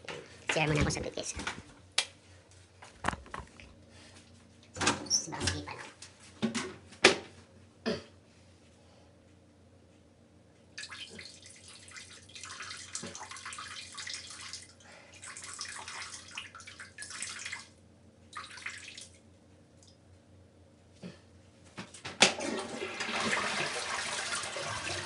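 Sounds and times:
man urinating into toilet: 0:10.8 - 0:19.2, 0:22.3 - 0:25.0.

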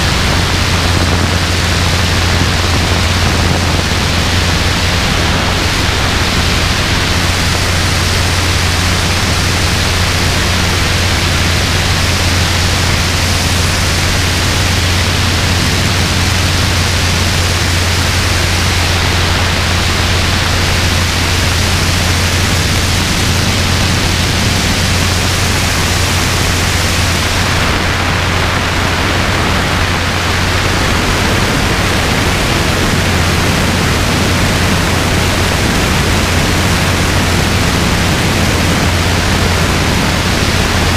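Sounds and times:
helicopter engine and rotor drone: 0:00.0 - 0:40.9
wind rushing over microphone: 0:00.0 - 0:40.9.

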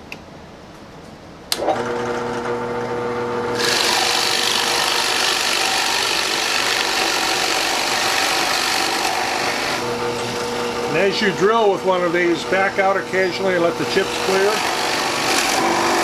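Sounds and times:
drill press switch click: 0:01.5 - 0:01.8
drill press motor humming: 0:01.5 - 0:16.0
drill bit boring into wood: 0:03.6 - 0:16.0.

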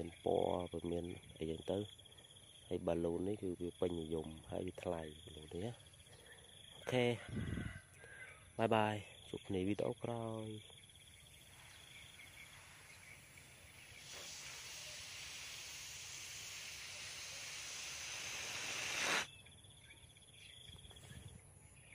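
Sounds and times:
air hissing from balloon: 0:11.4 - 0:19.3.

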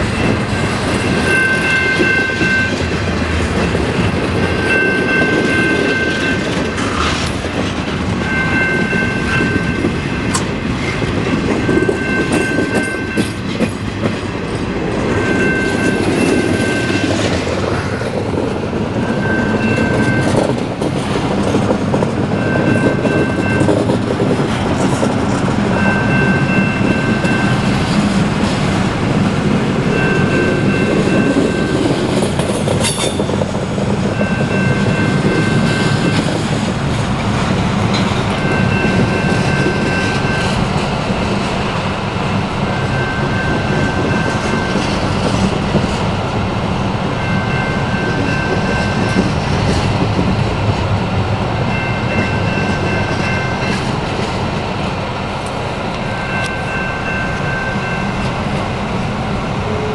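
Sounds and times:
train wheels rumbling on rail: 0:00.0 - 0:59.9
high ringing tone: 0:00.1 - 0:02.8, 0:04.4 - 0:06.5, 0:08.2 - 0:10.3, 0:11.6 - 0:13.4, 0:15.2 - 0:17.1, 0:19.0 - 0:20.4, 0:25.7 - 0:27.6, 0:29.9 - 0:31.9, 0:42.7 - 0:44.9, 0:56.1 - 0:58.4.

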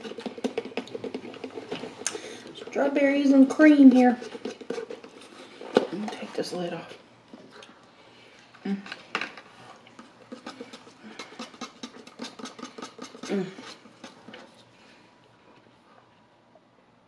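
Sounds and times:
plastic straw stirring thick shake: 0:00.0 - 0:07.0, 0:10.0 - 0:14.7.

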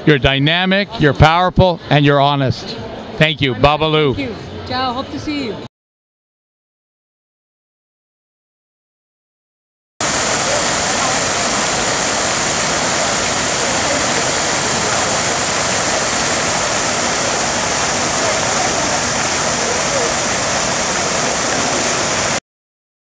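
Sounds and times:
fountain water splashing: 0:10.0 - 0:22.4.

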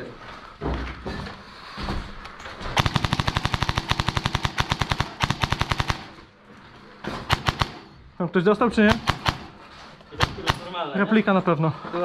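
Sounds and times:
airsoft guns firing full-auto: 0:02.8 - 0:06.3, 0:07.2 - 0:07.9, 0:08.9 - 0:09.6, 0:10.2 - 0:10.8.

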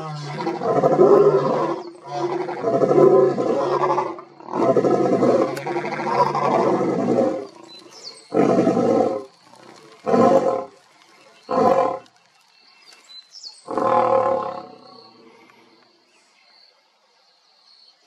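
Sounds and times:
lion roaring: 0:00.0 - 0:10.8, 0:13.7 - 0:15.1.

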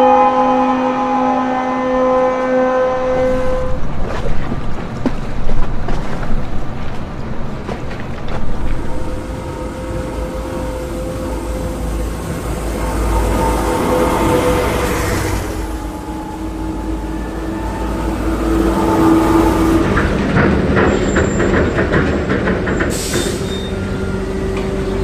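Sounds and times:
ship's horn blast: 0:00.0 - 0:04.0, 0:08.7 - 0:20.4
wind: 0:00.0 - 0:25.0
water noise: 0:03.0 - 0:22.3
scattered knocks: 0:19.3 - 0:23.4.

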